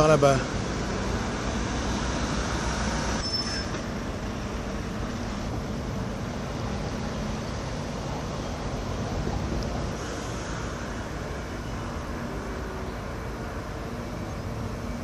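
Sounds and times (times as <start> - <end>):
vehicle rumble: 0.0 - 15.0
high squeak: 3.2 - 3.9.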